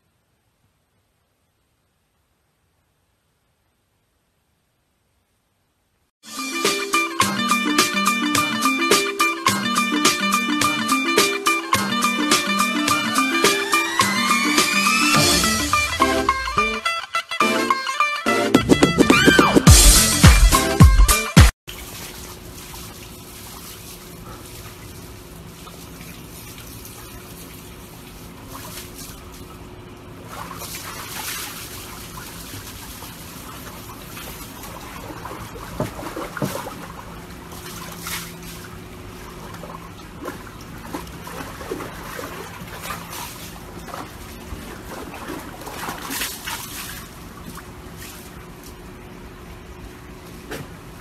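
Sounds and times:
dog splashing water: 21.7s - 48.9s
water trickling and sloshing in a tub: 21.7s - 51.0s.

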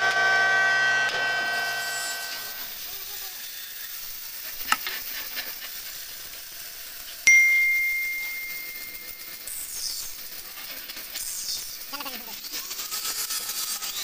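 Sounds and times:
bright bell ding: 7.3s - 9.3s.

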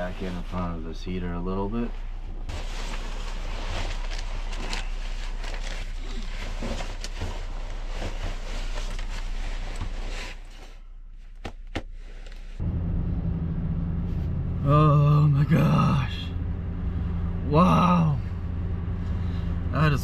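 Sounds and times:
jacket fabric rustling: 1.8s - 12.6s
low hum: 12.2s - 20.0s.

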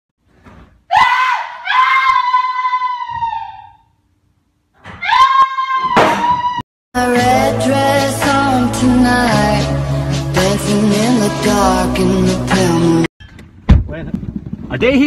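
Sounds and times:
person screaming: 0.9s - 3.8s, 5.0s - 6.6s.

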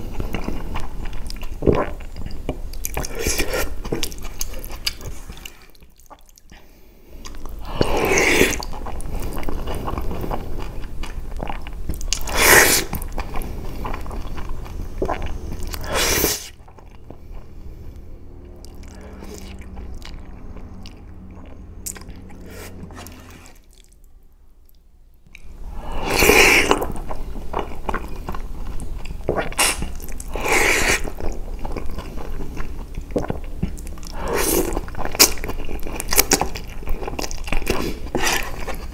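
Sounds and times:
chewing: 0.0s - 24.0s, 26.1s - 38.9s
slurping noodles: 7.6s - 10.7s, 12.2s - 16.6s, 25.7s - 27.2s, 29.3s - 31.3s, 34.0s - 35.5s.

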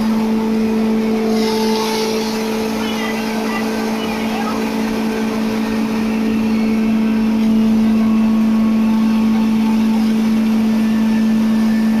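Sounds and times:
hammer mill humming: 0.0s - 12.0s.

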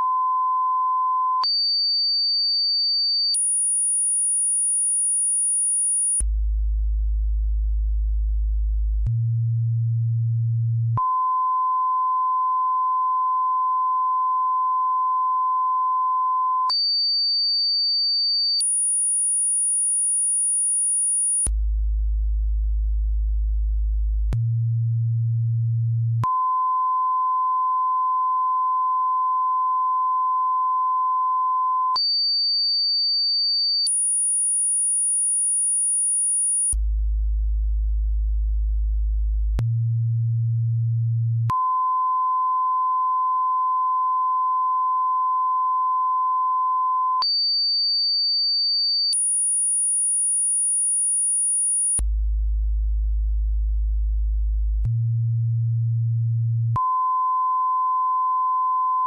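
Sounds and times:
mid-pitched beep: 0.0s - 1.6s, 11.0s - 16.8s, 41.5s - 47.4s
low hum test tone: 6.2s - 12.2s, 21.5s - 27.0s, 36.7s - 42.2s, 52.0s - 57.1s.

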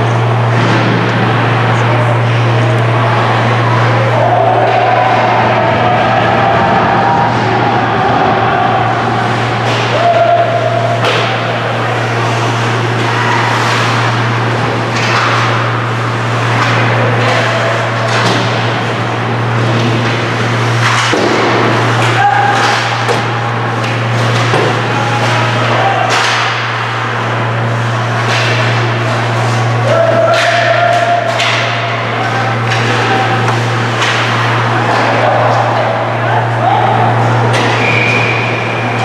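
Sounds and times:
steady low hum: 0.0s - 39.0s
hockey sticks clacking on puck: 9.6s - 27.0s, 27.8s - 36.1s
skate blades scraping: 9.6s - 27.0s.

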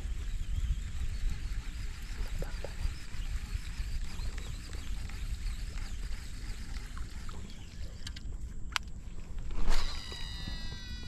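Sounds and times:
wind rumbling on microphone: 0.0s - 11.0s
faint high chirping: 9.7s - 11.0s.

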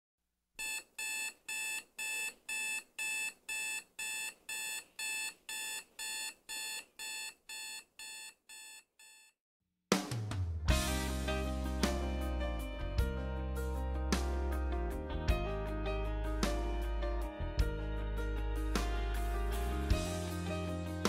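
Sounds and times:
electronic alarm beeping: 0.6s - 9.3s.

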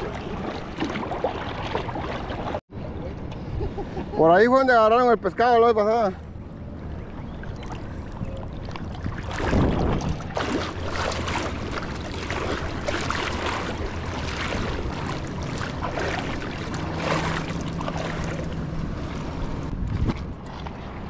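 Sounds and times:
water splashing as people wade: 0.0s - 2.6s, 6.6s - 20.9s
wind noise on microphone: 7.6s - 10.6s, 19.0s - 21.0s.

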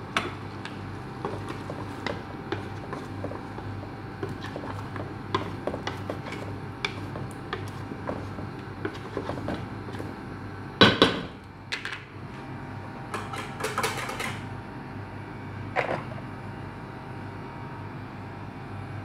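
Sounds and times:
steady low hum: 0.0s - 18.5s
kitchenware clattering on metal pot: 13.2s - 14.4s.

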